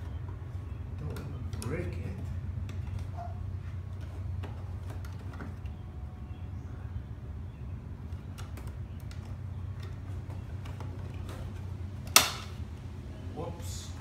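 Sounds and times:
steady low hum: 0.0 - 14.0
plastic snapping crack: 8.1 - 12.7.

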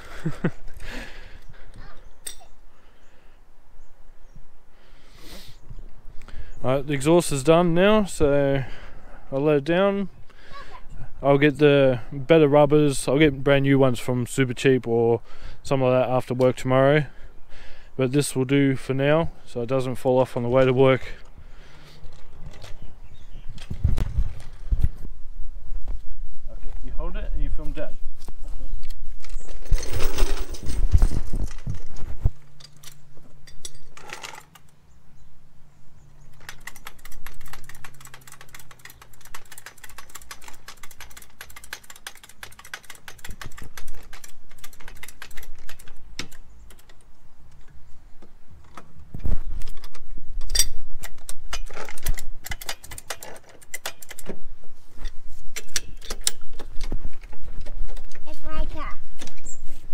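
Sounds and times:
trolley jack clicking and rattling: 36.3 - 47.1, 49.6 - 54.4, 55.1 - 58.3.

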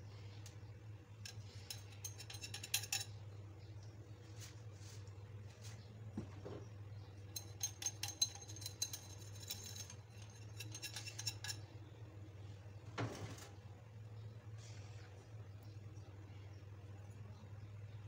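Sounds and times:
metal whisk clinking against bowl: 1.2 - 3.2, 7.3 - 11.7.

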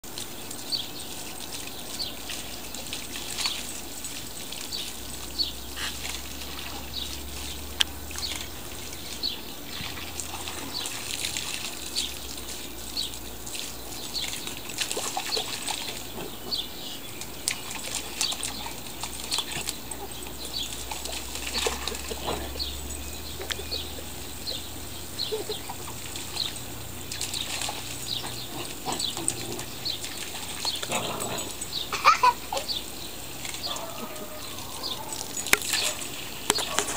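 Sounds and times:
hose water splashing into puddle: 0.0 - 36.9
bird chirping: 15.2 - 36.9.

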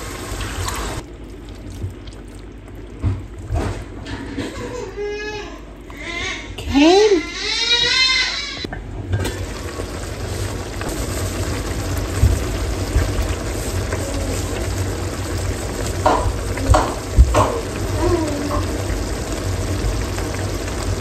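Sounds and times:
sauce sizzling in a skillet: 9.3 - 21.0.

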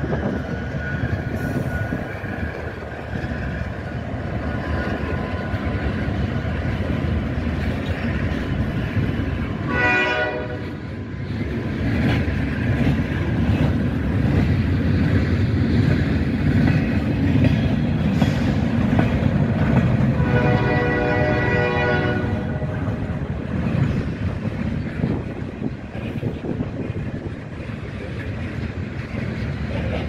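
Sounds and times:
freight train wheels clattering: 0.0 - 30.0
locomotive horn: 9.6 - 10.8, 20.1 - 23.4.

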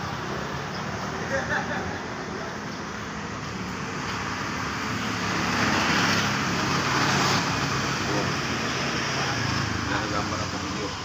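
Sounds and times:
road traffic noise: 0.0 - 11.0.

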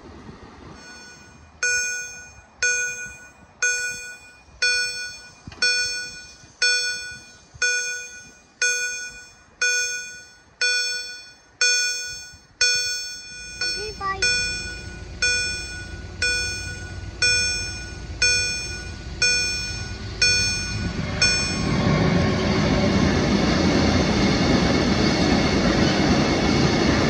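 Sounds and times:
level crossing warning bell: 0.8 - 22.4.

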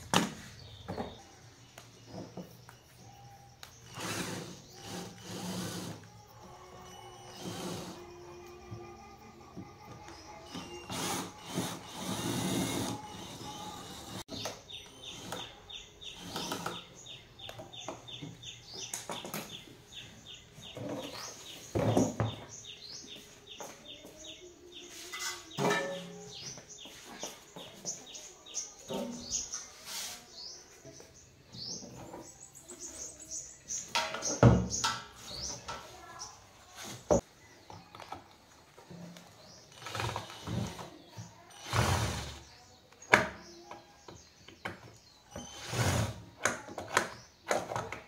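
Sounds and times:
small birds chirping: 0.0 - 48.0
cordless drill whirring: 7.2 - 8.0, 10.6 - 14.2.

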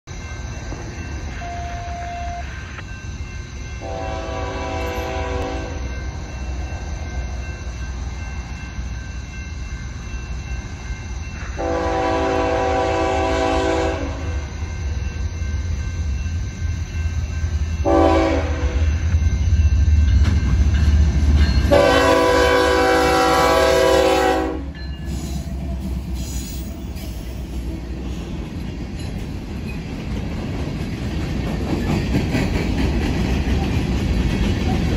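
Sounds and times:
low locomotive rumble: 0.1 - 34.9
locomotive horn blasts: 3.8 - 5.8, 11.6 - 14.4, 17.8 - 18.9, 21.7 - 24.7
train wheel clatter: 14.7 - 23.9, 24.7 - 34.9.

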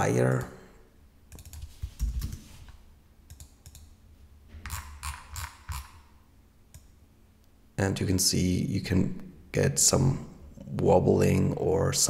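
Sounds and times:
keyboard and mouse clicks: 1.3 - 2.5, 3.3 - 4.0, 4.6 - 6.0, 6.7 - 6.9.

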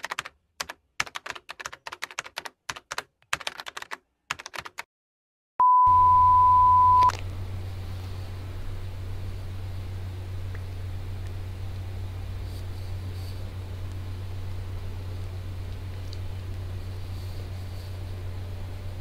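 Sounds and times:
steady single-pitched beep: 5.6 - 7.1
low hum and hiss: 5.9 - 19.0.

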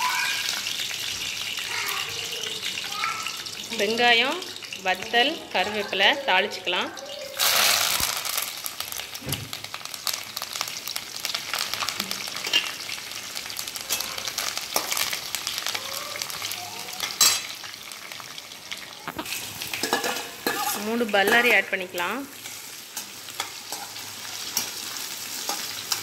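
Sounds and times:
hot oil sizzling and crackling: 0.0 - 26.0
metal spatula stirring in pan: 12.2 - 12.9, 13.7 - 15.4, 17.0 - 17.6, 18.7 - 26.0.

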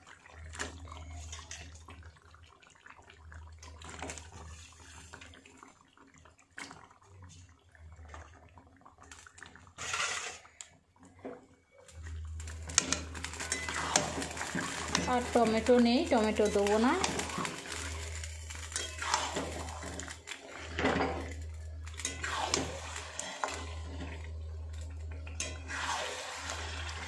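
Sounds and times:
meat sizzling in hot oil: 11.9 - 27.0.

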